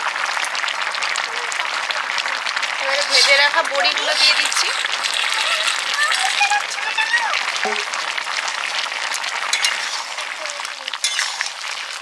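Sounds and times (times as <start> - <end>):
curry bubbling and sizzling: 0.0 - 12.0
metal spatula clinking on pot: 9.5 - 10.3, 11.0 - 11.6.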